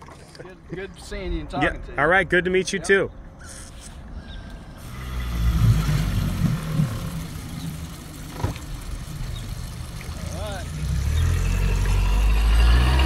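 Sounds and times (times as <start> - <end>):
outboard motor running: 4.8 - 13.0.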